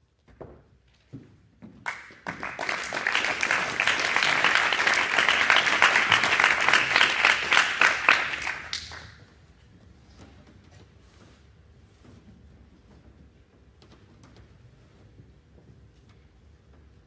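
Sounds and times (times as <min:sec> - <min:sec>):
audience applauding: 0:01.9 - 0:09.2.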